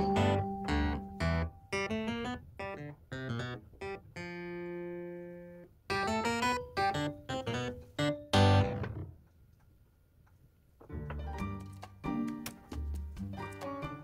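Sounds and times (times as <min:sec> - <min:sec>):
plucked string music: 0:00.0 - 0:05.1.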